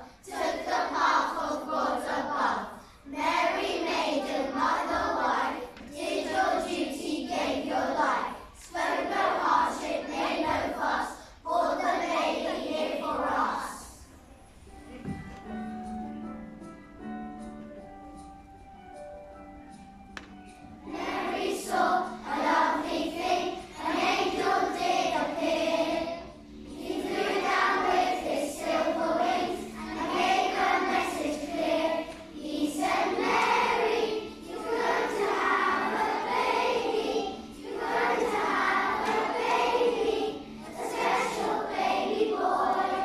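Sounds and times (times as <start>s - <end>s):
children's choir singing: 0.0s - 19.0s, 19.7s - 43.0s.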